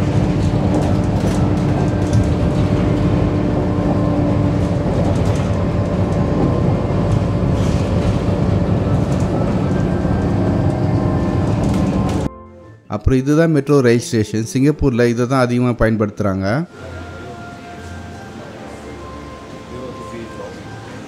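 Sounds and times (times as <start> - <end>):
bus engine and road rumble: 0.0 - 12.3.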